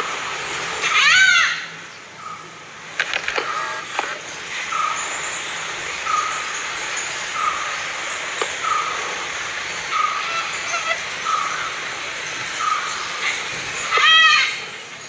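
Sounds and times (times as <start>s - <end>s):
forest background hiss: 0.0s - 15.0s
bird calling sharp notes: 6.0s - 11.8s, 12.6s - 14.8s.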